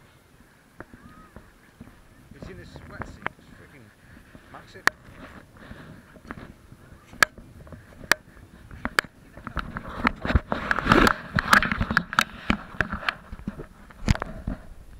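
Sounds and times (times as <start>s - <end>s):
footsteps crunching on gravel: 0.8s - 11.9s
sharp clicks and knocks: 7.1s - 14.6s.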